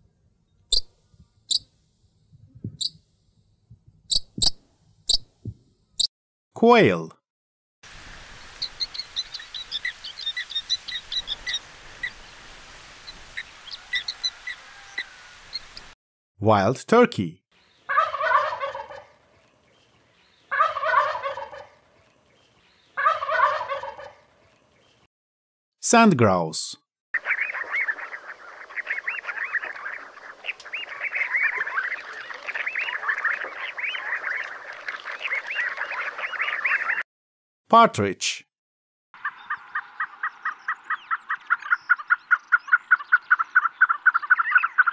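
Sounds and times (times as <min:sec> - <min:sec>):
quail chirping: 0:02.7 - 0:03.0, 0:04.1 - 0:05.3, 0:08.5 - 0:12.2, 0:13.0 - 0:15.9, 0:17.8 - 0:19.2, 0:20.4 - 0:21.8, 0:22.8 - 0:24.3, 0:27.2 - 0:37.0, 0:39.2 - 0:44.9
steady background hiss: 0:07.9 - 0:15.9.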